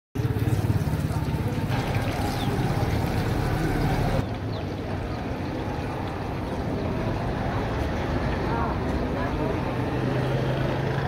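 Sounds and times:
hot oil sizzling and bubbling: 0.2 - 4.4.

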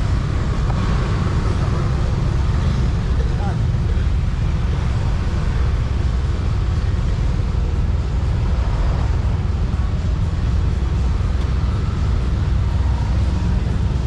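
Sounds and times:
road and traffic noise: 0.0 - 14.0.

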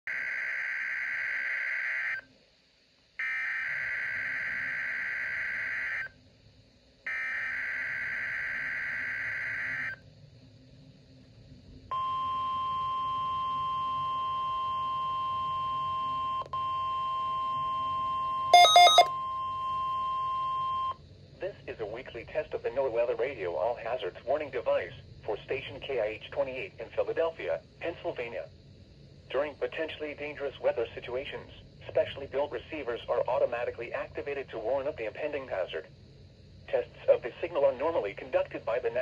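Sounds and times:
loud electronic beep: 18.6 - 19.1
screechy digital data bursts: 18.6 - 19.1
steady alarm tone: 18.6 - 20.1.

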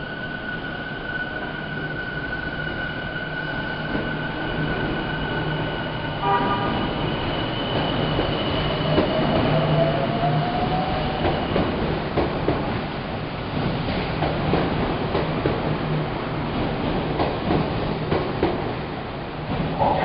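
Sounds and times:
train rumble: 3.9 - 20.0.

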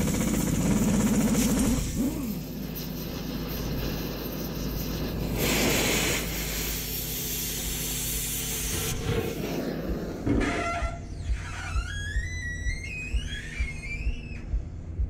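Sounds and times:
cutting torch hissing: 1.0 - 10.3
rush of gas: 1.7 - 10.2.

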